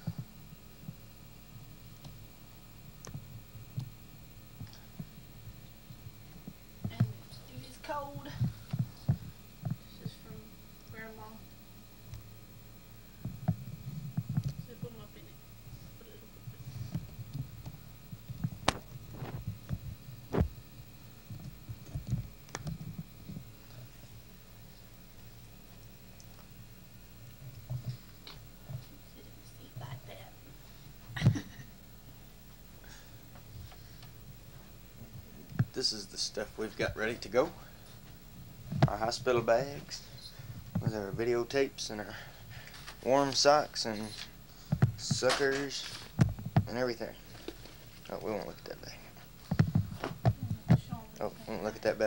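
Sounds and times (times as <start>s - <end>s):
faint steady hum: 0.0s - 52.0s.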